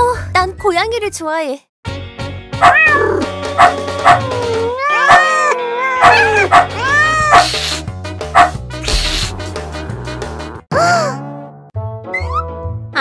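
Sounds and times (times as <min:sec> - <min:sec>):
kitten meowing: 0:02.6 - 0:07.7.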